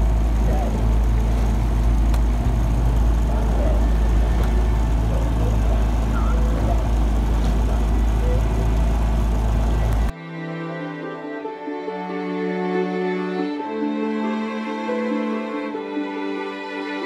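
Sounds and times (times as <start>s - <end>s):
boat motor running: 0.0s - 10.1s
soft slow music: 10.1s - 17.0s.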